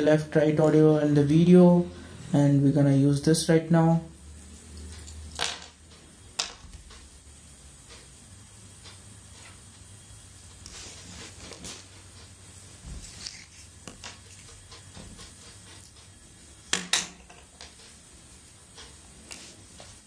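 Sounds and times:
wire rustling: 8.8s - 20.0s.

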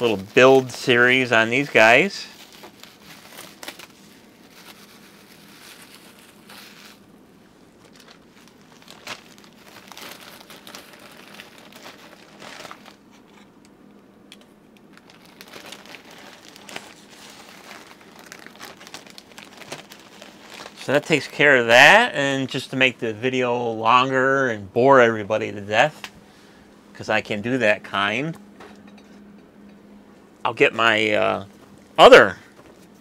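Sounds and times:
bubble wrap and plastic crinkling: 0.0s - 7.1s, 7.7s - 13.5s, 14.8s - 21.8s.

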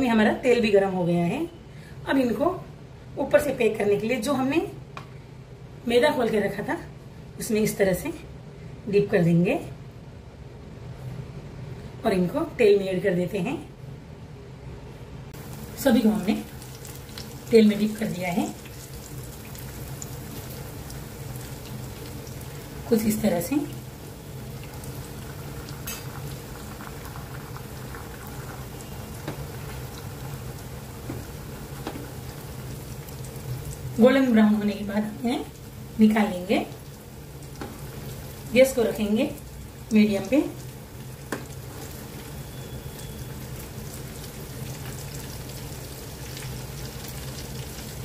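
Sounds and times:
oil bubbling and sizzling: 15.4s - 48.0s.

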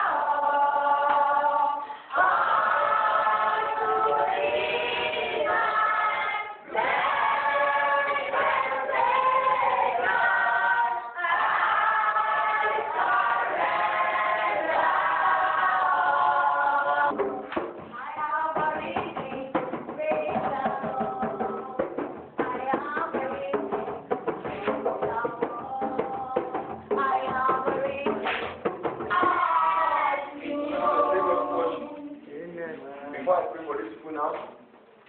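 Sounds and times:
group singing gospel chorus: 0.0s - 17.5s, 29.0s - 32.3s
quick sharp beats: 17.1s - 29.9s.

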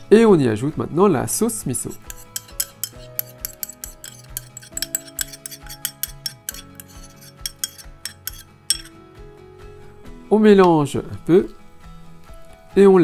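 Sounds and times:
soft background music: 0.0s - 13.0s
metal spoon scraping ceramic bowl: 1.8s - 9.0s.

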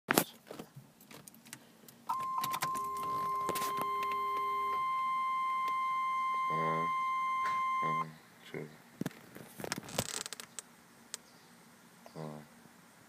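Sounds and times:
car keys jingling: 1.1s - 7.8s
high electronic warning tone: 2.1s - 8.1s
low hum: 2.1s - 8.1s.

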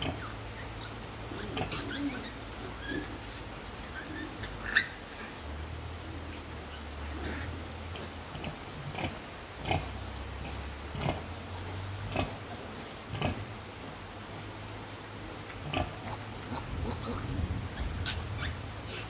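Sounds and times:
pigs grunting and squeaking: 0.0s - 5.1s, 15.6s - 19.0s.

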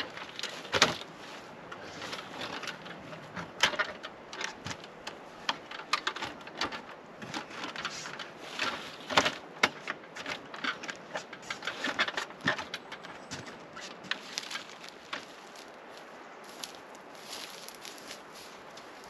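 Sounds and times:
clicks taps and knocks: 2.4s - 15.3s.

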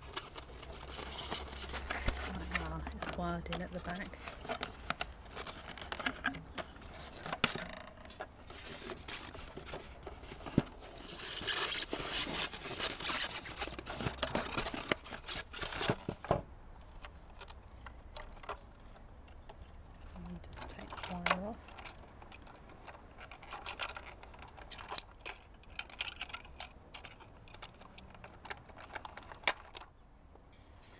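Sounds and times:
plastic packaging scrapes and rustles: 0.0s - 16.3s.

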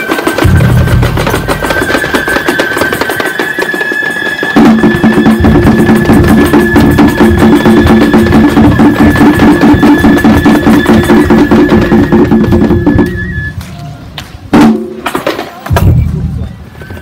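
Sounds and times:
drum beating quick rhythm: 0.0s - 13.6s
high held flute note: 9.9s - 14.0s.

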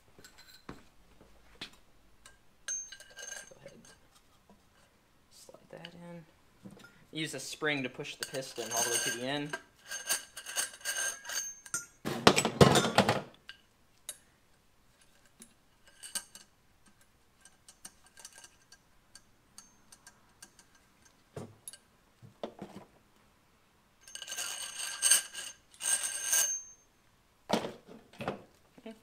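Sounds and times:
light metal clinks: 2.2s - 4.0s, 8.2s - 12.0s, 15.8s - 21.9s
parts rattling inside metal tube: 8.1s - 11.7s
ringing metal scraping: 8.2s - 12.0s, 24.0s - 26.9s.

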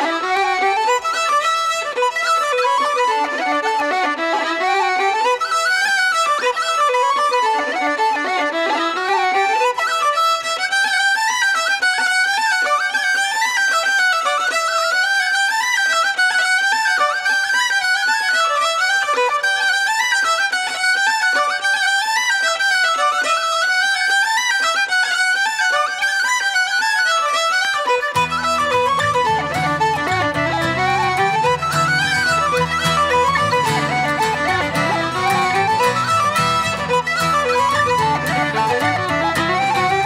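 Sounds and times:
fiddle: 0.0s - 40.0s
tin whistle: 28.4s - 40.0s.

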